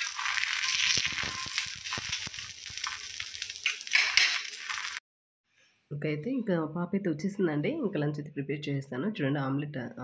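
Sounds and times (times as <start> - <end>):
omelette sizzling in oil: 0.0 - 5.0.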